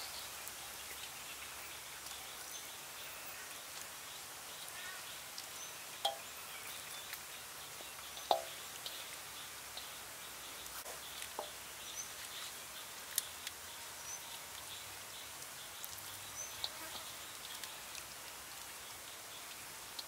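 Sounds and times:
faint steady hiss: 0:00.0 - 0:20.0
light taps on metal bowl: 0:06.0 - 0:06.2, 0:08.2 - 0:08.5.

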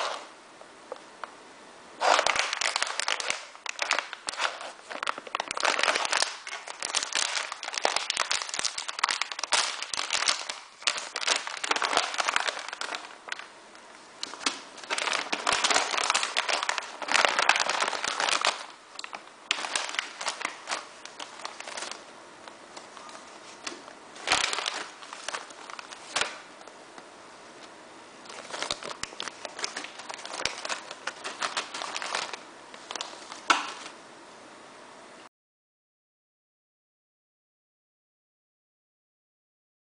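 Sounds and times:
plastic packets crinkling: 0:02.0 - 0:13.5, 0:14.2 - 0:22.0, 0:22.7 - 0:26.5, 0:28.2 - 0:34.0.

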